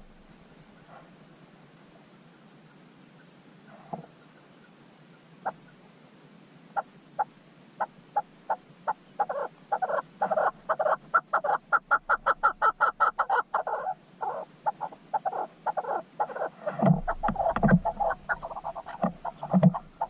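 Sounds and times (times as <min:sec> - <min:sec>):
animal calling in sharp notes: 0:09.2 - 0:20.0.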